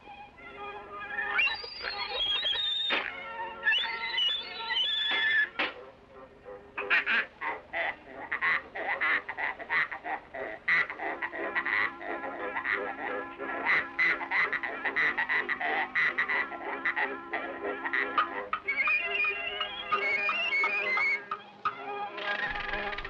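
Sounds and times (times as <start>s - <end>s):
cartoon pig squeals playing a tune: 1.0s - 5.7s, 15.9s - 23.0s.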